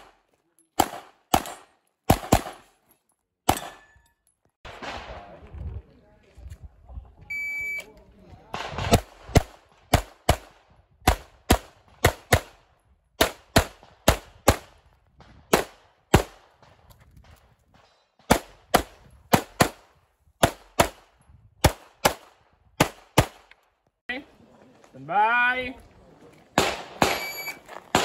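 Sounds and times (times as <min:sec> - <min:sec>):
pistol firing rapid shots: 0:00.8 - 0:02.6, 0:08.6 - 0:12.6, 0:13.2 - 0:14.8, 0:18.3 - 0:21.0, 0:21.6 - 0:23.5.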